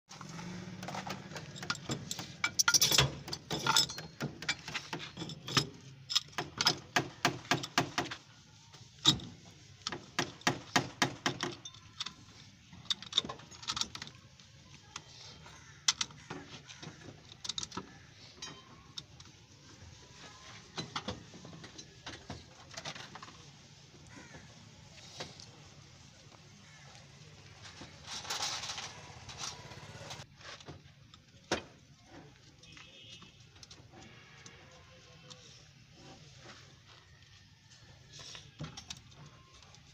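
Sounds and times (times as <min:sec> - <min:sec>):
metal clanks on brake parts: 0:00.8 - 0:07.8
tools clinking: 0:00.8 - 0:07.8.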